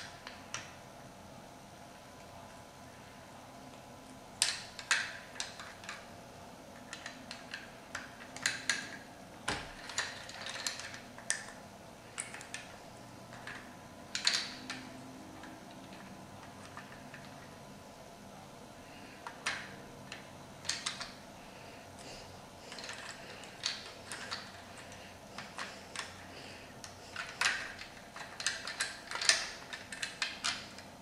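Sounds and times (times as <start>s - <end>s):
plastic bricks clicking together: 27.2s - 30.8s.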